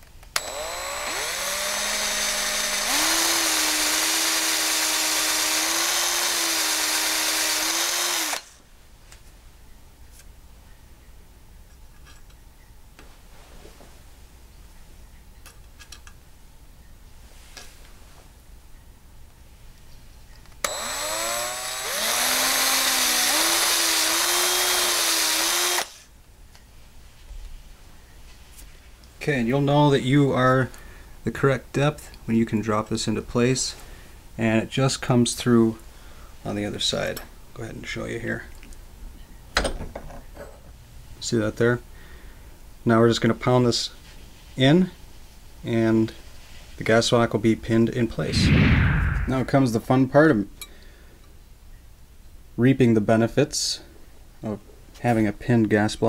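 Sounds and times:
hand drill motor running: 0:00.4 - 0:08.6, 0:20.7 - 0:26.0.

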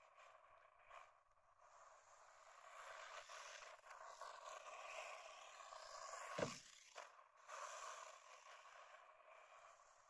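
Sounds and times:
rc car driving over gravel: 0:01.7 - 0:09.6
car hitting a board: 0:06.4 - 0:06.6.

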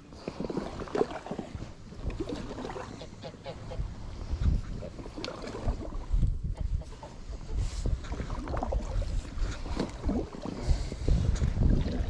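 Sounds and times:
ducks or geese honking: 0:02.8 - 0:03.9.

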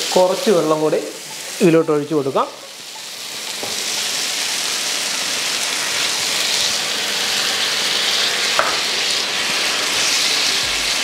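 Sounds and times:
masala sizzling in a frying pan: 0:00.0 - 0:11.0.

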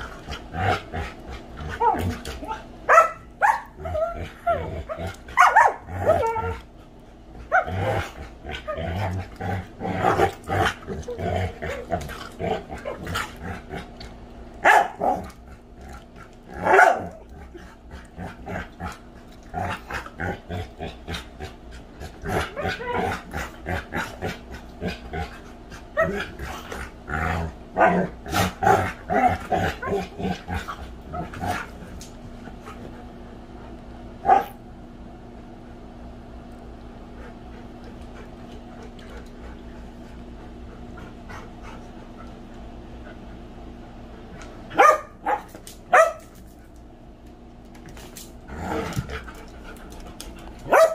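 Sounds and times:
dogs growling: 0:00.0 - 0:03.0, 0:03.6 - 0:33.5, 0:47.9 - 0:50.9
dogs barking: 0:02.9 - 0:03.9, 0:05.4 - 0:06.5, 0:14.6 - 0:15.3, 0:16.6 - 0:17.2, 0:34.2 - 0:34.6, 0:44.7 - 0:46.3, 0:50.6 - 0:50.9.

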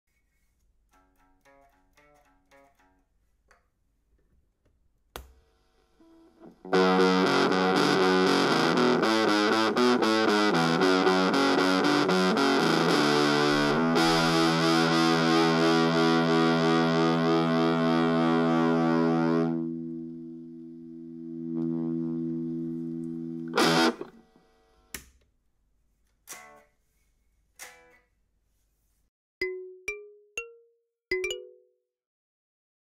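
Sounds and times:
faint plucked guitar notes: 0:06.1 - 0:24.1
loud distorted guitar: 0:06.4 - 0:24.1.

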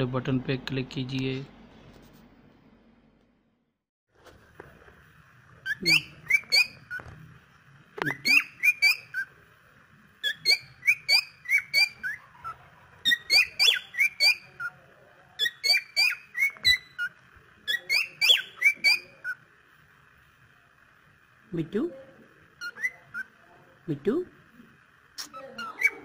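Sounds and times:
cockatiel whistling: 0:05.6 - 0:07.0, 0:08.0 - 0:09.3, 0:10.2 - 0:14.7, 0:15.4 - 0:17.1, 0:17.7 - 0:19.4, 0:22.6 - 0:23.3, 0:25.6 - 0:26.0.

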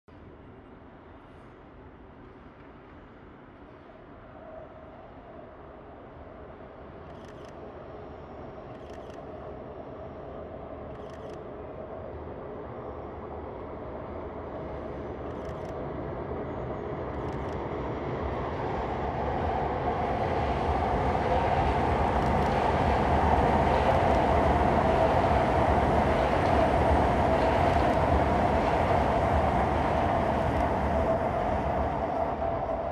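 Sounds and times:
high-speed train passing: 0:07.8 - 0:32.9.

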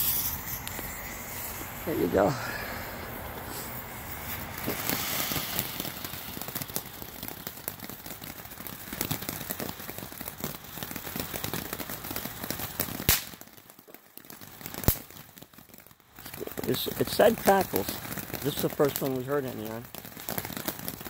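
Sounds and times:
firework fountain crackling: 0:00.0 - 0:21.0
firework sharp crack: 0:00.0 - 0:21.0.

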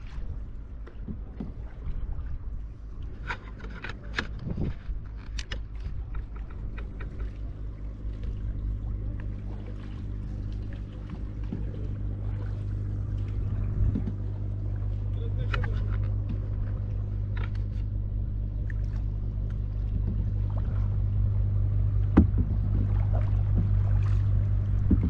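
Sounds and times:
boat engine humming: 0:00.0 - 0:25.0
sharp knocks: 0:22.2 - 0:22.9.

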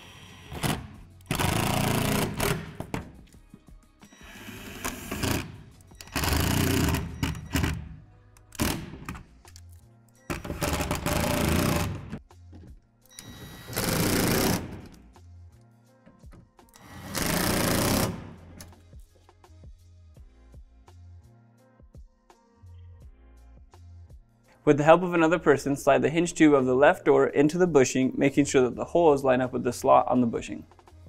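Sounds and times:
cordless drill driving screws: 0:00.0 - 0:02.6, 0:16.8 - 0:18.2
background music: 0:00.0 - 0:31.0.

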